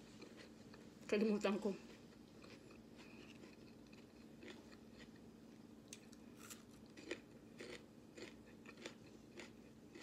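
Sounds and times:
crunching bell pepper: 1.8 - 5.3, 5.9 - 10.0.

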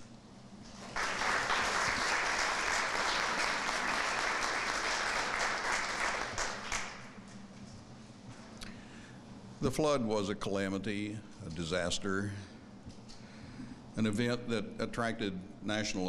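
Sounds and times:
audience applauding: 0.8 - 7.1.

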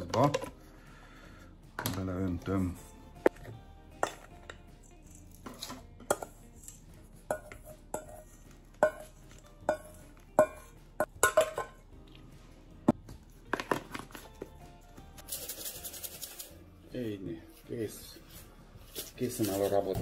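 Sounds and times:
metal spoon clinking on steel bowl: 4.0 - 11.8.

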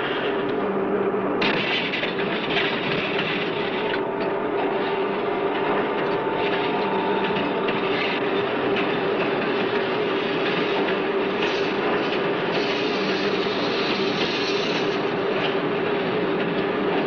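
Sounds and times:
low hum: 0.0 - 10.0
mechanical hiss and clatter: 7.9 - 16.2.

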